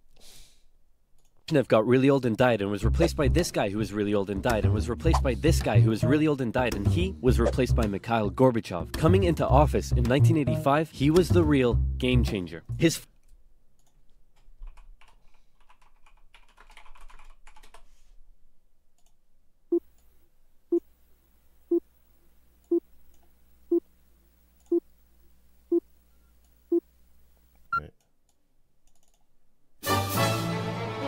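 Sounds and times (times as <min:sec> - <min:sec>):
keyboard and mouse clicking: 0:13.2 - 0:17.9, 0:28.3 - 0:29.3.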